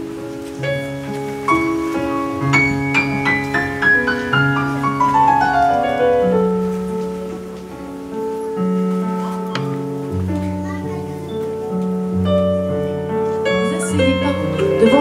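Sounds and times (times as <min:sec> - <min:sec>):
gentle piano music: 0:00.0 - 0:15.0.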